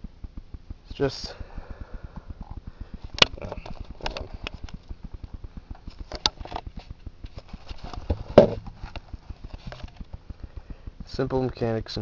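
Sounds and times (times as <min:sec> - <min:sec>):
fast low ticking: 0:00.0 - 0:12.0
handling knocks and rustles: 0:05.9 - 0:10.2.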